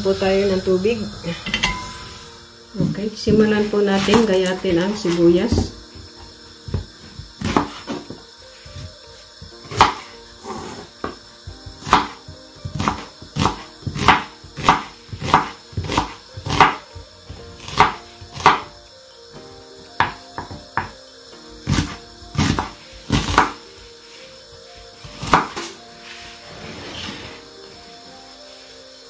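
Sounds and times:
faint background music: 0.0 - 29.0
knife chopping on wooden board: 5.1 - 8.2, 9.6 - 16.9, 17.6 - 18.7, 20.0 - 21.0, 21.6 - 23.6, 25.1 - 25.7.

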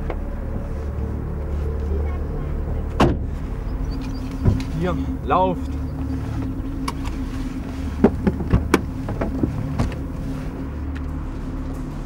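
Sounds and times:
car engine running: 0.0 - 12.0.

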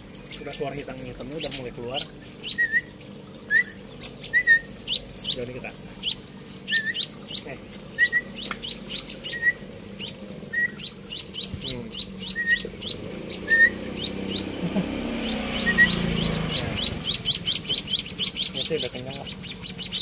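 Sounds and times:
young birds chirping: 0.0 - 20.0
lower rising bird note: 11.6 - 17.6.

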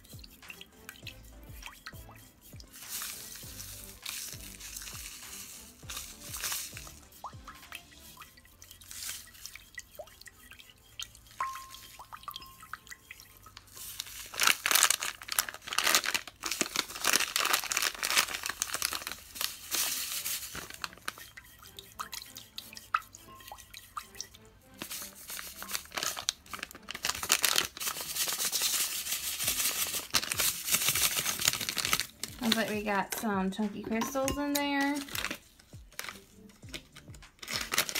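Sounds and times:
stir stick scraping ceramic bowl: 0.0 - 37.9
gritty crunch of crystals: 2.7 - 7.2, 13.6 - 21.2, 24.8 - 33.0, 34.8 - 37.9.

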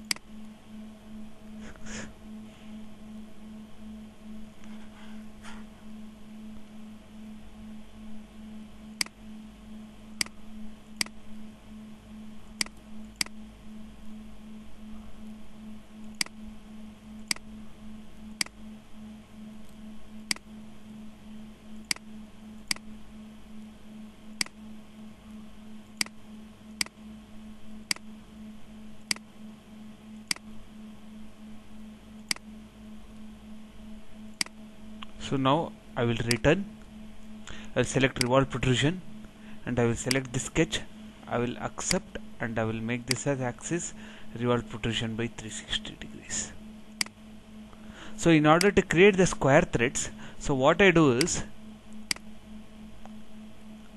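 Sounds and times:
steady low hum: 0.0 - 53.9
computer mouse clicks: 11.0 - 11.2, 12.5 - 13.4, 16.0 - 16.4, 17.2 - 17.5, 20.3 - 20.5, 21.8 - 22.9, 24.4 - 24.6, 27.8 - 28.1, 29.0 - 29.2, 30.2 - 30.5, 32.2 - 32.5, 46.9 - 47.2.

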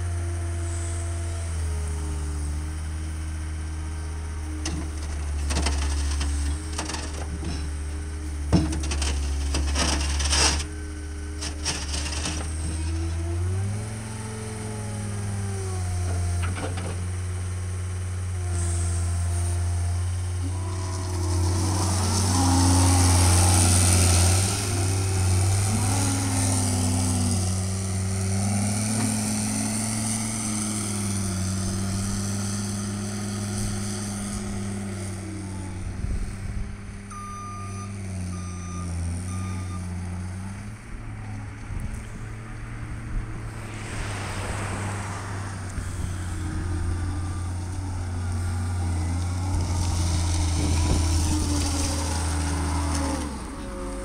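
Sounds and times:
diesel engine revving: 0.0 - 54.0
back-up alarm beeping: 37.1 - 39.8.

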